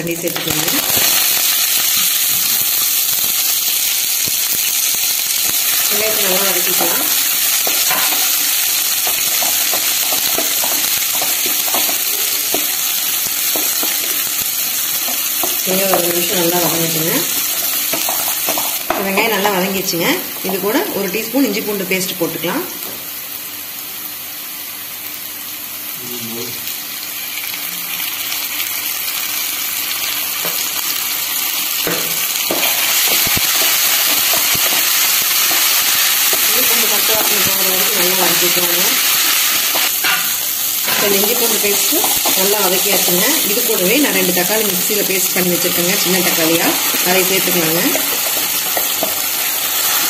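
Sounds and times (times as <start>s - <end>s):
shallots sizzling in hot oil: 0.0s - 50.0s
spatula scraping and tapping pan: 6.6s - 12.8s, 17.5s - 19.3s, 31.8s - 36.6s.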